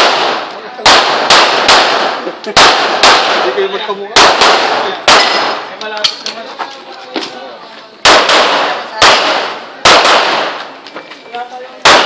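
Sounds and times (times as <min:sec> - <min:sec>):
handgun shots: 0:00.0 - 0:03.5, 0:04.2 - 0:06.2, 0:08.0 - 0:10.7.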